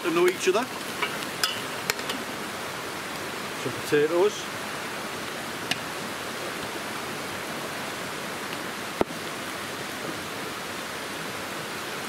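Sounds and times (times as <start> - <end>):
vegetables frying hiss: 0.0 - 9.4
rushing stream: 0.0 - 12.0.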